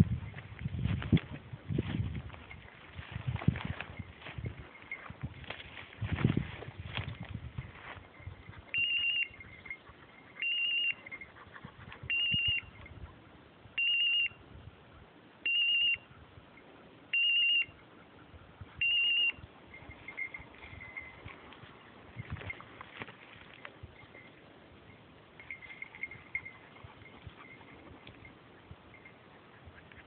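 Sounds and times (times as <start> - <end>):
fainter lower tone: 18.8 - 29.4.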